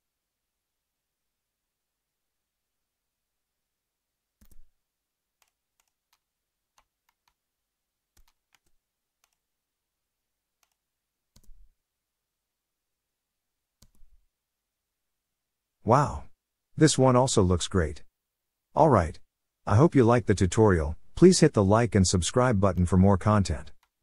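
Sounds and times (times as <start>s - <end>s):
mouse and keyboard clicks: 4.4s - 4.7s, 5.4s - 7.4s, 8.2s - 9.5s, 10.6s - 11.8s, 13.8s - 14.3s.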